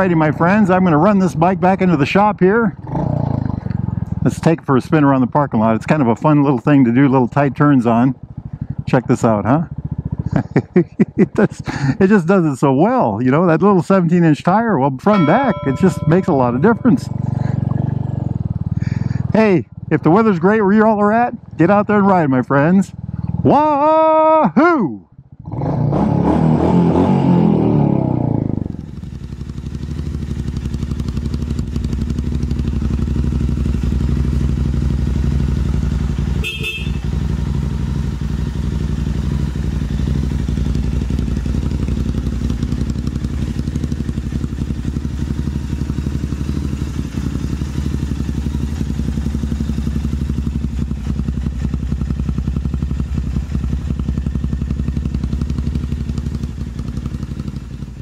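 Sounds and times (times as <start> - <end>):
motorcycle engine idling: 0.0 - 12.0, 15.1 - 23.9, 28.6 - 58.0.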